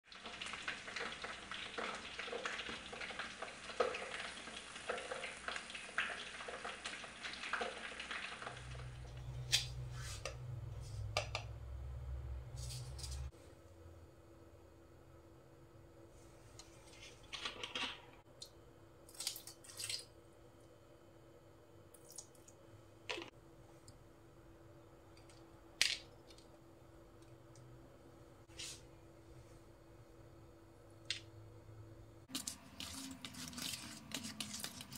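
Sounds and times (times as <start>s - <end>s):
fish frying in hot oil: 0.0s - 9.1s, 32.3s - 34.9s
low steady hum: 8.6s - 34.9s.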